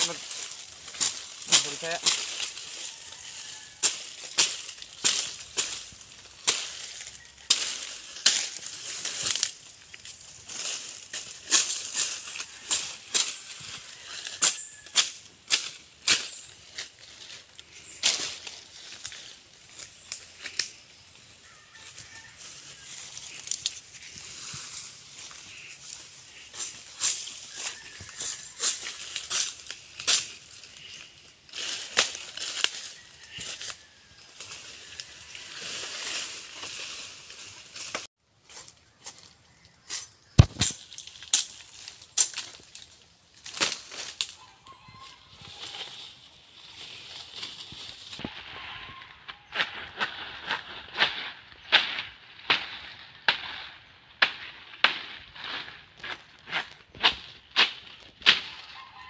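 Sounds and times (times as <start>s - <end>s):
dry leaves crackling: 0.0s - 59.0s
machete chopping palm frond: 0.9s - 2.7s, 3.8s - 9.6s, 14.2s - 17.0s, 40.3s - 42.6s, 43.4s - 44.4s, 49.5s - 58.7s.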